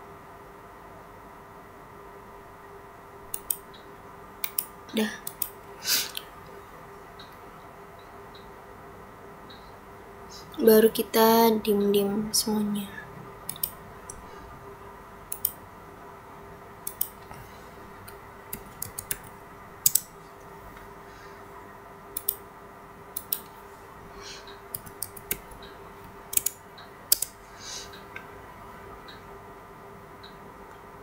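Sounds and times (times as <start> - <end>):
faint steady hum: 0.0 - 31.0
mouse and keyboard clicking: 3.3 - 3.7, 4.4 - 6.2, 13.5 - 14.2, 15.3 - 15.6, 16.8 - 17.2, 18.5 - 20.1, 22.2 - 22.4, 23.2 - 23.5, 24.5 - 27.4.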